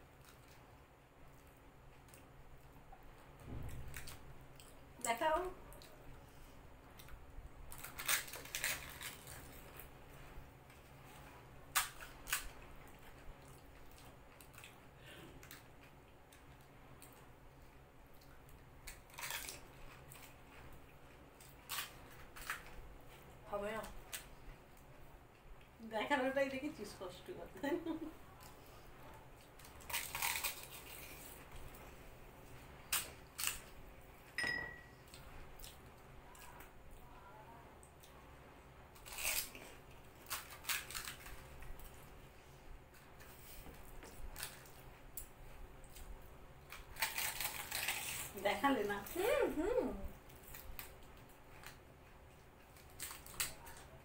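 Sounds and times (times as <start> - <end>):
crisp shells crunching: 7.7 - 9.7, 18.8 - 20.4, 29.6 - 31.4, 32.8 - 33.7, 38.9 - 41.9, 46.7 - 48.4.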